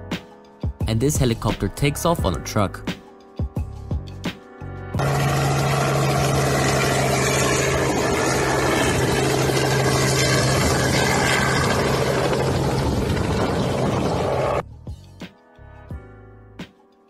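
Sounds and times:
helicopter engine and rotor: 5.0s - 14.6s.

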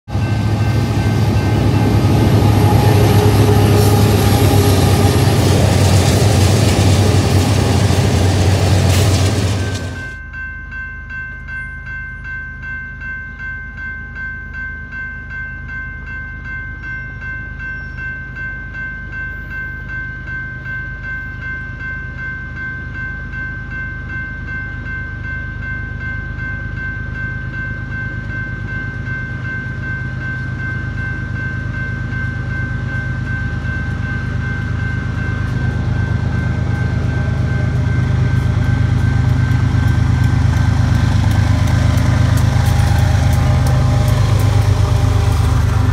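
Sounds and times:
diesel locomotive rumble: 0.1s - 10.2s, 27.5s - 45.9s
crossing warning bell ringing: 0.1s - 45.9s.

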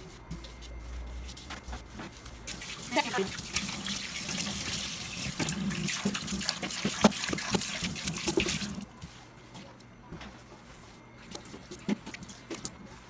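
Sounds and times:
tap water running into sink: 2.5s - 8.8s.

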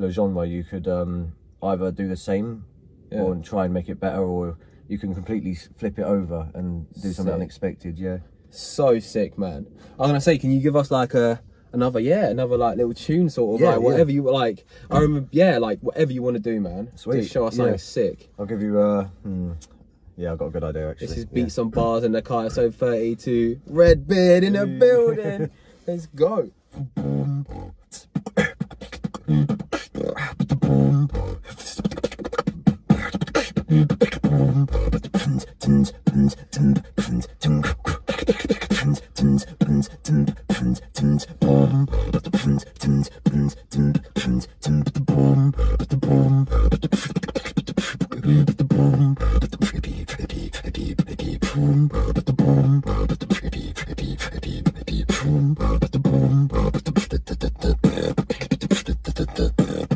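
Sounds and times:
beatboxing: 13.5s - 14.2s, 26.6s - 59.9s.

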